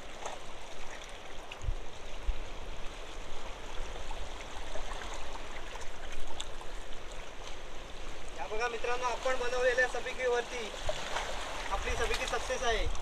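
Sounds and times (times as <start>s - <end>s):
water washing around rocks: 3.1s - 13.0s.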